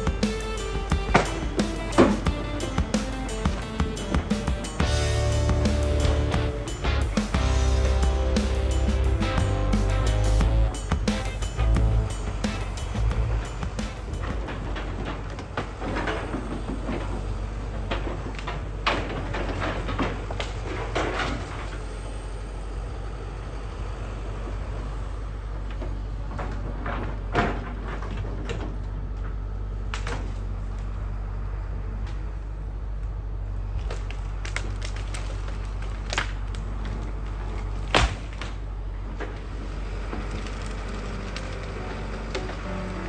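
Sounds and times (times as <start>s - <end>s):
excavator diesel engine running: 0.0s - 43.0s
branches cracking and breaking: 33.6s - 43.0s.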